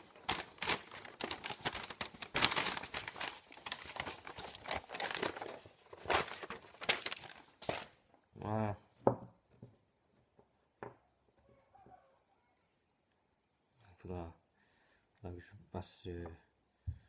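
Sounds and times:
paper rustling and crinkling: 0.0s - 8.1s.

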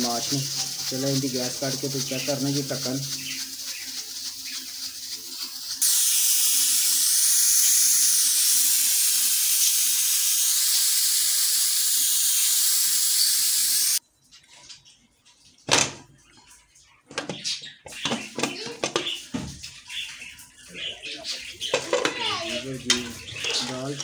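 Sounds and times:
steam hissing from pressure cooker: 0.0s - 14.0s.

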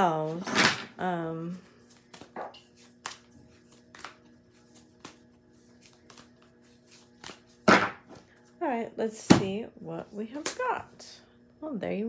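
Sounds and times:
cards swishing: 1.9s - 7.9s
cards shuffling: 1.9s - 8.2s.

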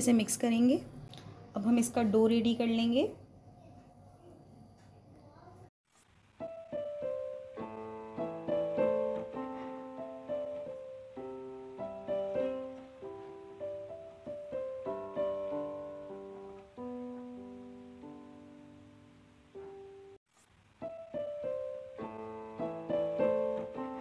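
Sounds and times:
piano melody with chords: 6.4s - 20.2s, 20.8s - 24.0s.

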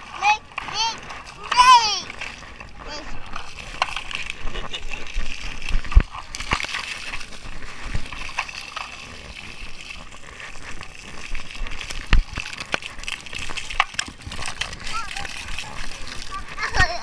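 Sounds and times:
water jets spraying: 0.0s - 17.0s.

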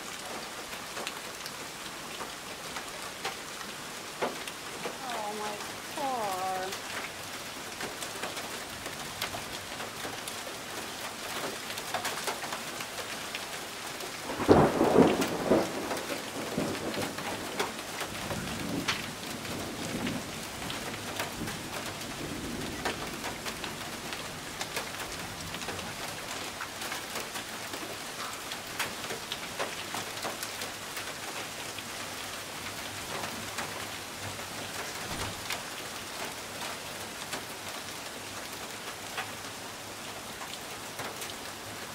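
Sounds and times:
heavy rain: 0.0s - 41.9s
thunderclap rumbling: 14.3s - 23.4s.

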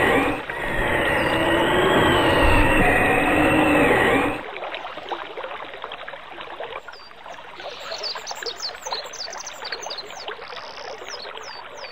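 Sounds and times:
high chirps sweeping downward: 0.0s - 4.4s
trickling water: 0.0s - 11.9s.

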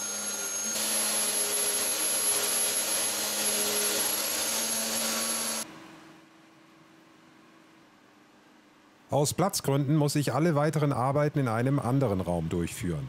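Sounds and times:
orbital sander whining: 0.0s - 5.6s.

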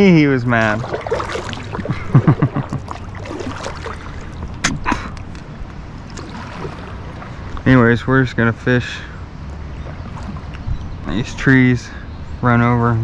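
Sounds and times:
water sloshing around kayak: 0.0s - 7.9s, 9.4s - 11.0s.

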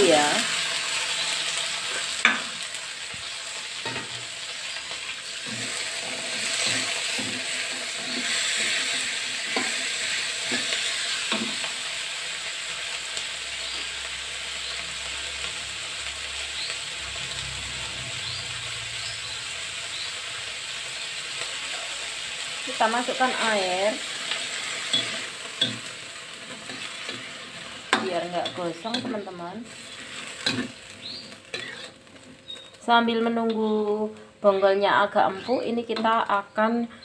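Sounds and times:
vegetables sizzling in hot oil: 0.0s - 36.8s
metal spatula scraping a wok: 0.6s - 11.7s, 23.0s - 33.7s, 35.2s - 36.1s.

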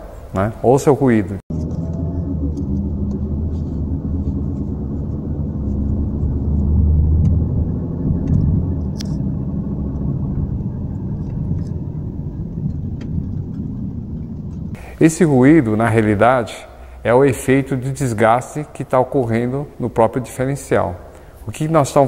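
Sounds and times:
differential droning hum: 0.0s - 22.0s
road noise: 0.0s - 22.0s.

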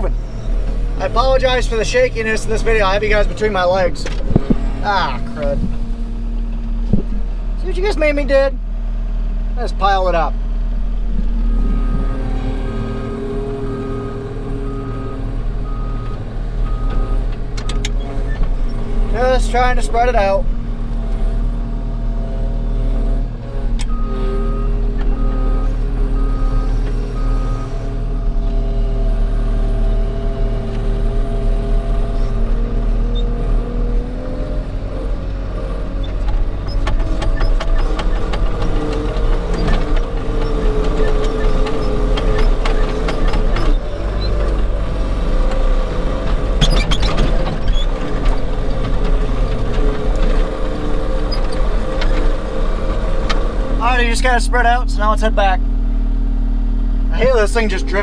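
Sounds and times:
loader engine running under load: 0.0s - 58.0s
rattles and knocks: 36.0s - 44.8s, 45.4s - 53.6s.

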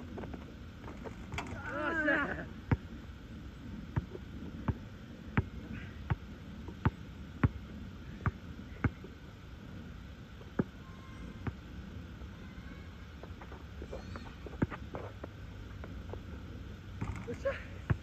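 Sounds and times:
basketball bouncing on asphalt: 2.6s - 3.0s, 3.9s - 9.1s.

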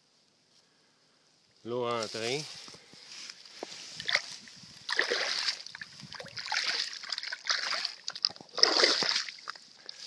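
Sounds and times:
dry grass rustling: 1.5s - 10.0s
water splashing out of a drain: 4.9s - 9.6s.

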